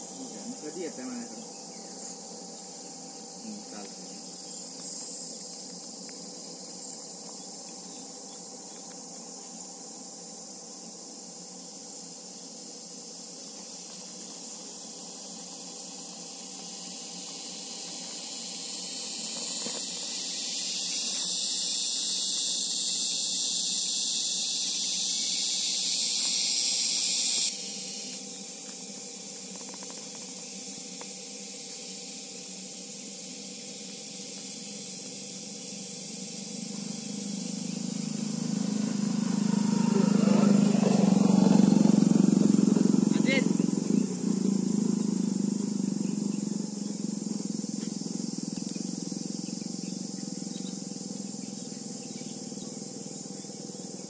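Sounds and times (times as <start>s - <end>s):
loud high hiss: 17.0s - 28.2s, 35.9s - 46.2s
vehicle engine rumble: 36.5s - 53.9s.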